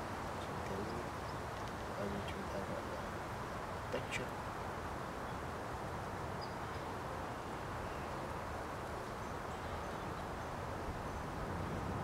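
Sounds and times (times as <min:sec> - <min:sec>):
outdoor background noise: 0:00.0 - 0:12.0
faint bird chirps: 0:04.9 - 0:11.9.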